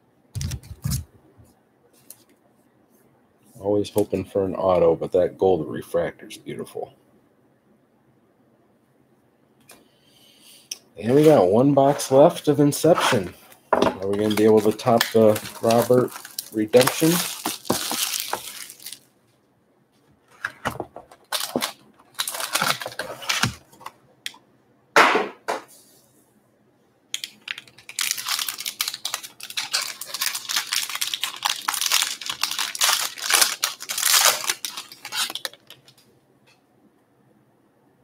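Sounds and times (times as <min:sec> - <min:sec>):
wrapper crinkling and tearing: 0:14.0 - 0:19.1, 0:21.2 - 0:23.7, 0:27.2 - 0:36.0
cardboard scraping and rustling: 0:20.4 - 0:23.8.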